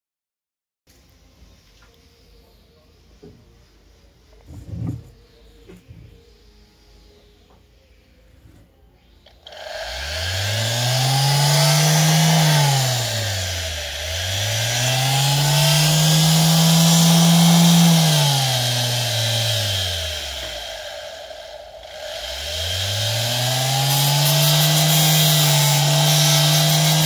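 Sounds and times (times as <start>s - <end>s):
router motor whining: 9.2s - 27.0s.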